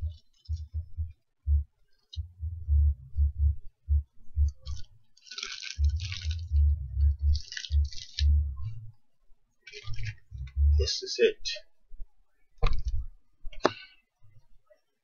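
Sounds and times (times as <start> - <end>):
plastic bag crinkling: 4.7 - 6.5, 7.3 - 8.2.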